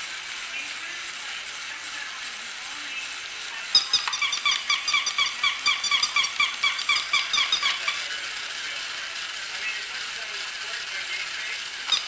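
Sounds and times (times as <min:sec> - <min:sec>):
toy click: 0:03.7 - 0:08.1
toy puppy electronic yapping: 0:03.7 - 0:08.1.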